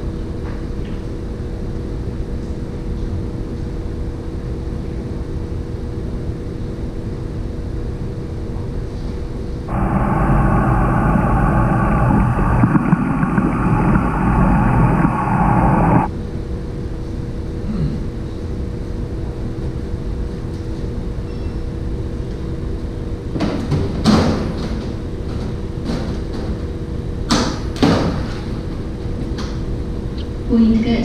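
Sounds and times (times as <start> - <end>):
steady low hum: 1.2 - 21.1
muffled underwater rushing: 9.7 - 16.1.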